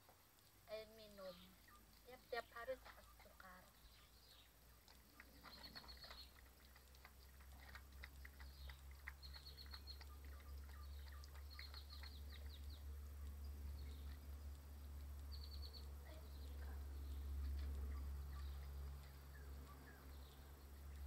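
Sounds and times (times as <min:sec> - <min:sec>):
puppies lapping and eating: 0:00.0 - 0:21.0
low rumble: 0:08.0 - 0:21.0.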